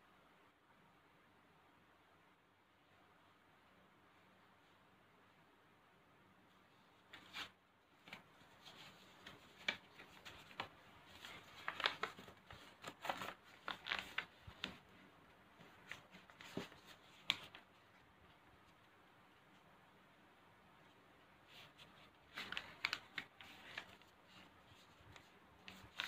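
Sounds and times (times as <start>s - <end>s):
paper crackling and rustling: 7.1s - 19.6s, 21.4s - 26.0s.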